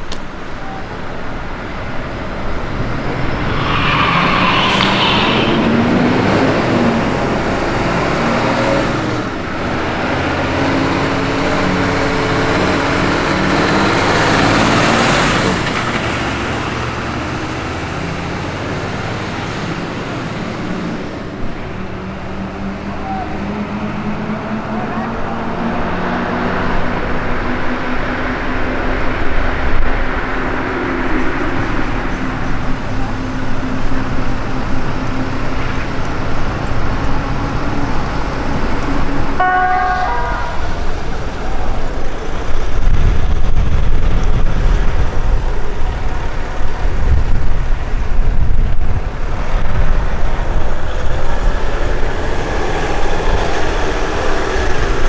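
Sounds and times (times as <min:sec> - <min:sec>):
vehicles passing: 0:00.0 - 0:55.0
loud low rumble: 0:01.7 - 0:08.0
short horn toot: 0:39.4 - 0:40.8.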